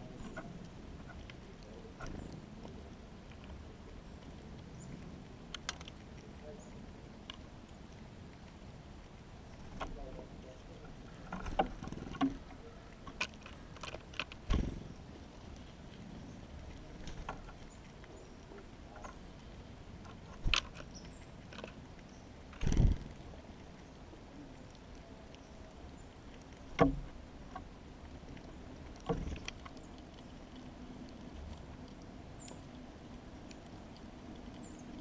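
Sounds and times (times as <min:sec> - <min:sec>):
birds knocking on feeder: 0:26.7 - 0:27.7, 0:29.1 - 0:29.7.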